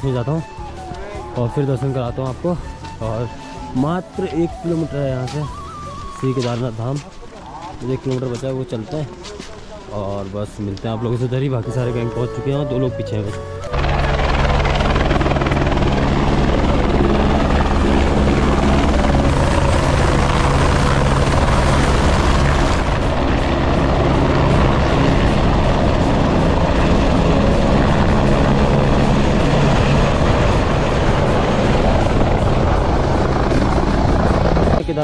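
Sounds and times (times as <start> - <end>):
helicopter rotor and engine: 13.6 - 35.0.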